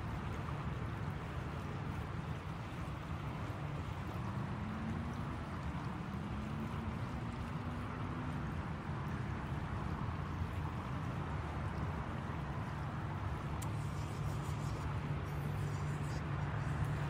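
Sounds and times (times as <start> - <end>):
faint engine hum: 0.0 - 17.0
low outdoor rumble: 0.0 - 17.0.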